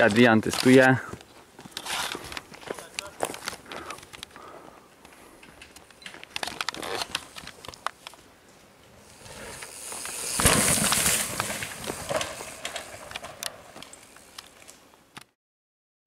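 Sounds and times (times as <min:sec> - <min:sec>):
bike tyres on dirt: 0:00.0 - 0:15.2
bike landing thud: 0:09.2 - 0:13.9.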